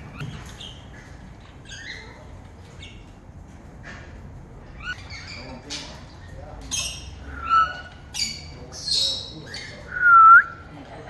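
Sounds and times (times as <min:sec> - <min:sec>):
parrots squawking and chirping: 0:04.7 - 0:09.9.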